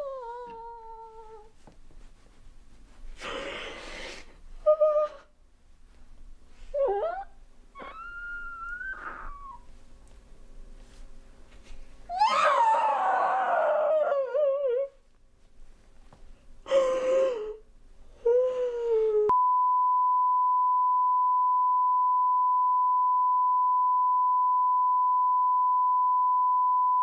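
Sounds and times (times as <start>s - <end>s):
short wavering cries: 6.8s - 9.7s
steady pure beep tone: 19.3s - 27.0s.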